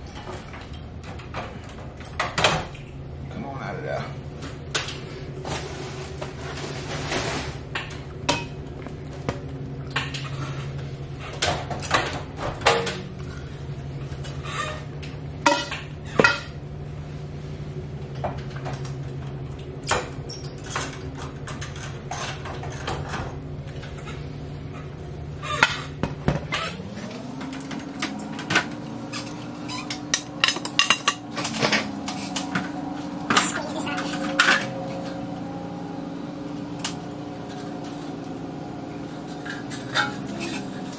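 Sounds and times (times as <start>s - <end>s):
steady low hum: 0.0s - 40.9s.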